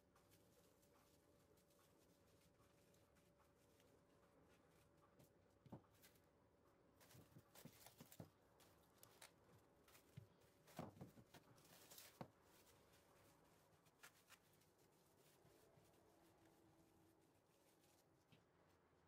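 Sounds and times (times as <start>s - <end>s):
plastic wrap rustling: 7.0s - 18.4s.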